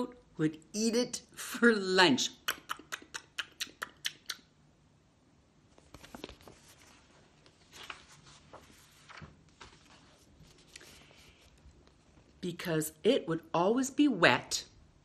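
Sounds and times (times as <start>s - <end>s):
paper pages rustling: 5.7s - 12.4s.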